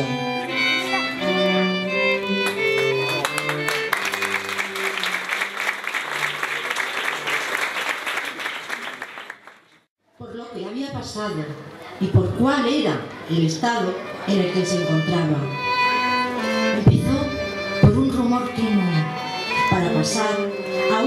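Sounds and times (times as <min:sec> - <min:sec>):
violin and cello playing: 0:00.0 - 0:06.7, 0:14.0 - 0:21.0
crowd applause: 0:02.4 - 0:09.8.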